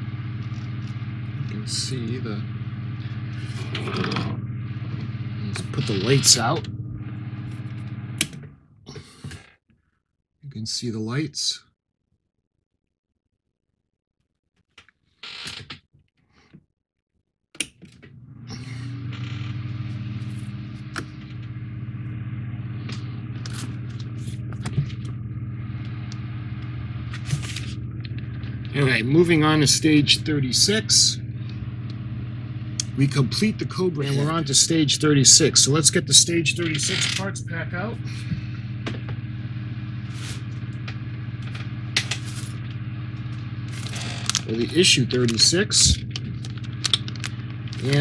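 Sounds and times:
steady low hum: 0.0 - 8.5, 18.2 - 48.0
plastic pack rustling: 43.7 - 48.0.

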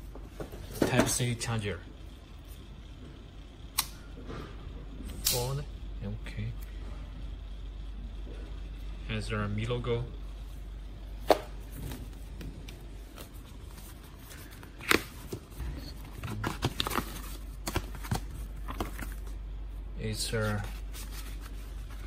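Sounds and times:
paper rustling: 20.4 - 22.0.

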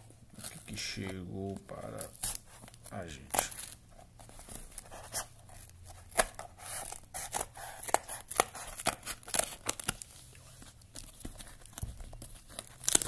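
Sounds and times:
scissors snipping packing tape: 6.0 - 10.0, 12.5 - 13.0.

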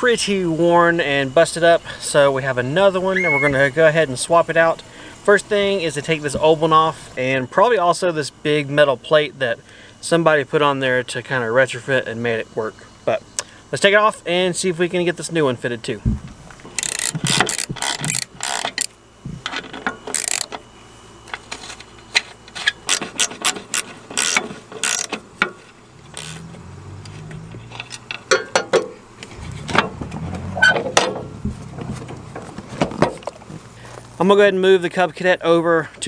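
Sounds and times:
hand tools clicking on metal: 16.7 - 18.9, 20.1 - 20.6, 22.6 - 26.4
low scraping rumble: 29.2 - 32.8.

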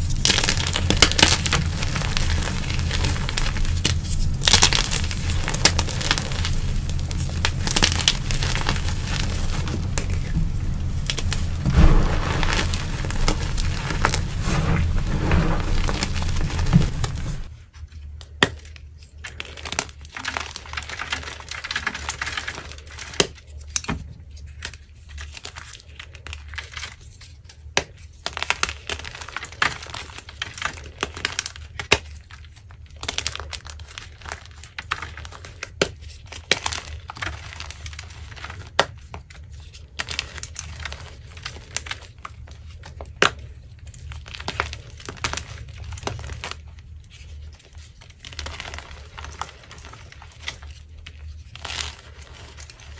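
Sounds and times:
chalk crunching by hand: 0.0 - 17.5
chalk pieces cracking: 0.0 - 17.5.

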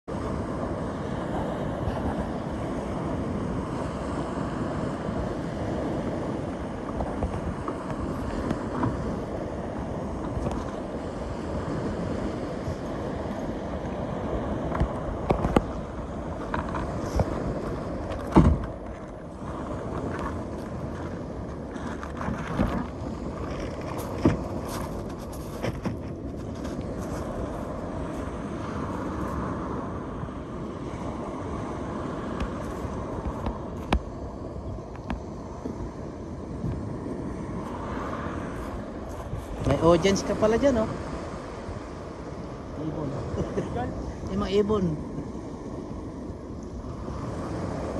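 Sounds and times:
sea waves: 0.0 - 47.9
wind: 0.0 - 47.9
fishing gear clattering on kayak: 16.4 - 19.2, 19.8 - 27.3
single thump: 18.2 - 18.7.

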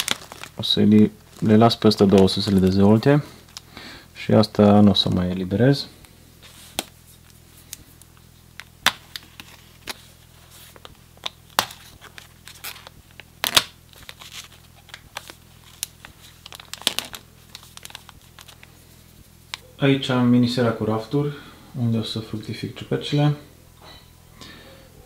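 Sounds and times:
plastic bag crinkling: 0.0 - 3.7, 6.4 - 19.6.

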